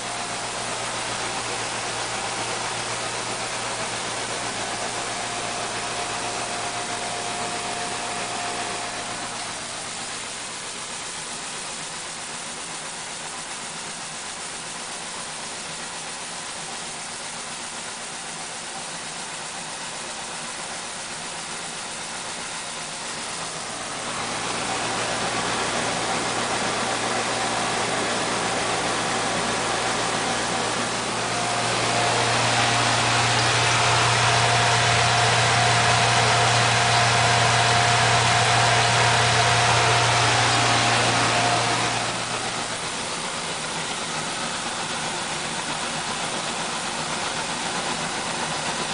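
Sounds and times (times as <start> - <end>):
steady low hum: 0.0 - 10.6, 23.1 - 46.0
rice milling machine running: 0.0 - 48.9.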